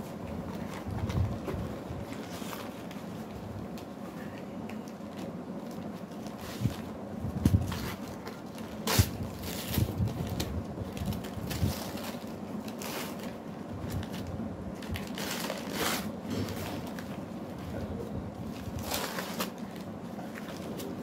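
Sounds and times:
paper wrapping torn and crumpled: 0:04.8 - 0:17.3, 0:18.4 - 0:21.0.

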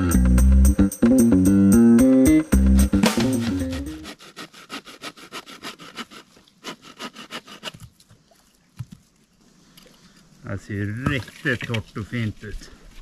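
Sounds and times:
bow saw cutting wood: 0:02.8 - 0:07.9.

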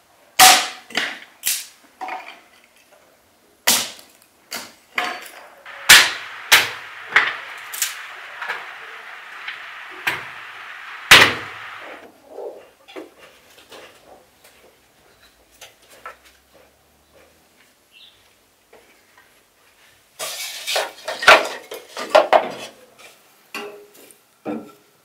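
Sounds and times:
footsteps: 0:05.7 - 0:12.1.

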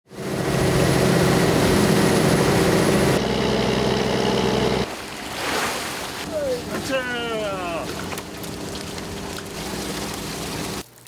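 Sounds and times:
boat engine droning: 0:00.1 - 0:10.8
water hissing along hull: 0:03.8 - 0:10.8.

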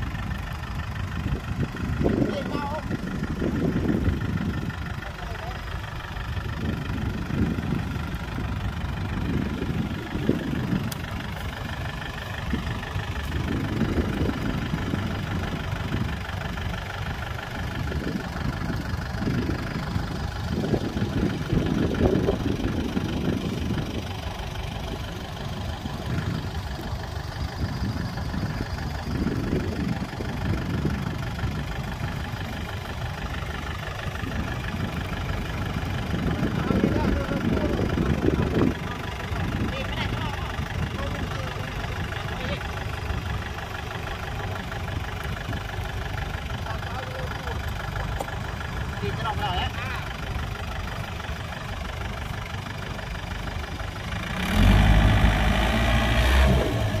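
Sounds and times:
tractor diesel engine running: 0:00.0 - 0:57.0.

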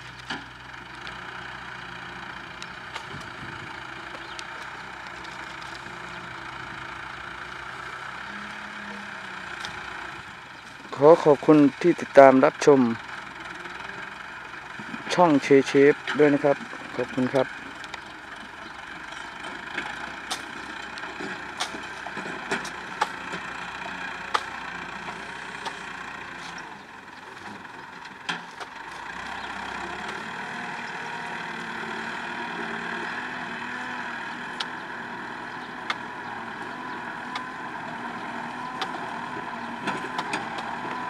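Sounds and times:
loader engine running: 0:00.0 - 0:41.0.

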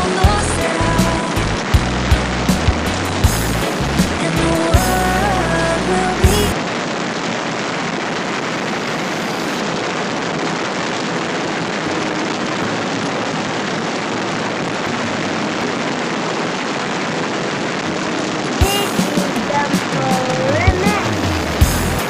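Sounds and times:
background music: 0:00.0 - 0:06.6, 0:17.9 - 0:22.0.

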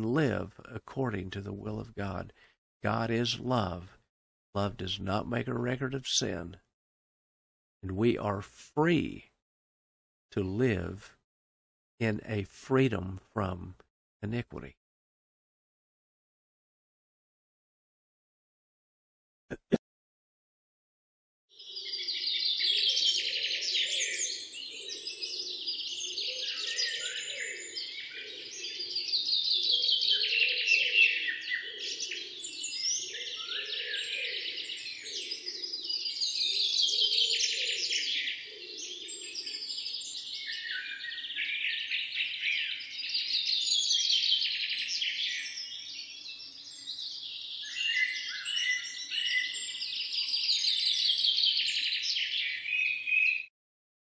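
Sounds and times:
songbirds chirping: 0:00.0 - 0:04.0, 0:04.6 - 0:06.7, 0:07.8 - 0:09.3, 0:10.3 - 0:11.1, 0:12.0 - 0:14.7, 0:21.5 - 0:53.5.

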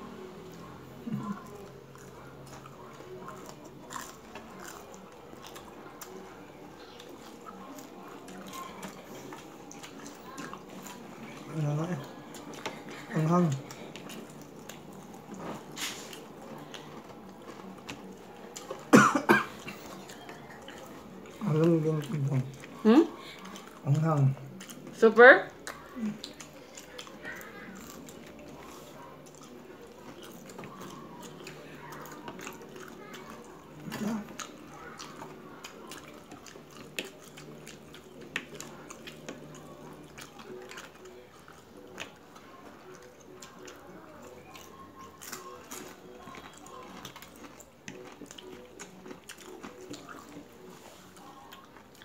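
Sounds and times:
wet chewing: 0:00.0 - 0:52.0
person coughing: 0:18.9 - 0:19.8.

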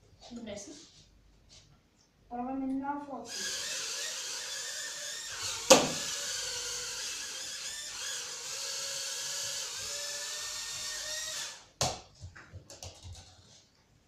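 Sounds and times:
toy drone whining: 0:03.3 - 0:11.6.

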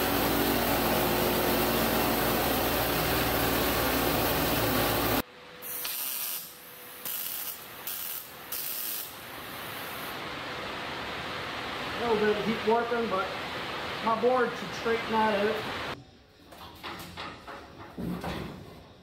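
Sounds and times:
pneumatic nibbler cutting steel: 0:04.4 - 0:09.2
short welding bursts: 0:05.6 - 0:10.1.

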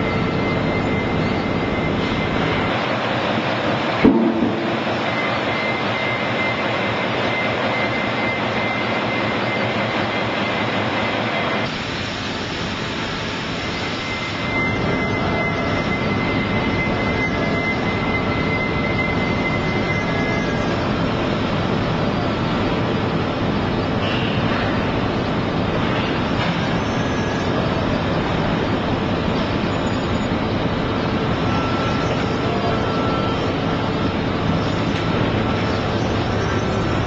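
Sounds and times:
forklift running: 0:00.0 - 0:37.0
high steady hydraulic whine: 0:00.0 - 0:37.0.

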